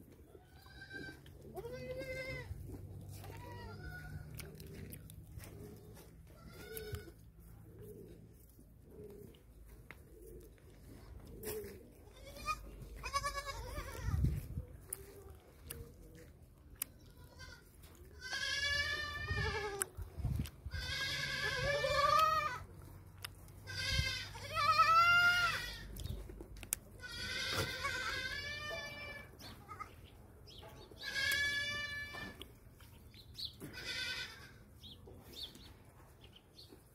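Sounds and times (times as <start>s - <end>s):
goats bleating: 0.3s - 4.6s, 6.3s - 7.2s, 12.0s - 14.2s, 17.1s - 19.9s, 20.7s - 22.7s, 23.6s - 26.0s, 27.0s - 30.0s, 31.0s - 32.4s, 33.6s - 34.6s.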